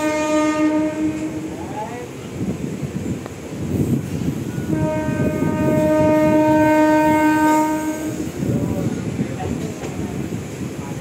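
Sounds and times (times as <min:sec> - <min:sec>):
train horn: 0:00.0 - 0:01.9, 0:04.6 - 0:08.4
rumble and rattle of moving train: 0:00.0 - 0:11.0.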